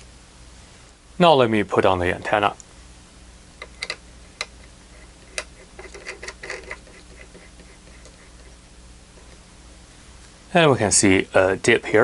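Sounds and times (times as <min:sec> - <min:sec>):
connector screwing clicks: 0:03.6 - 0:08.2.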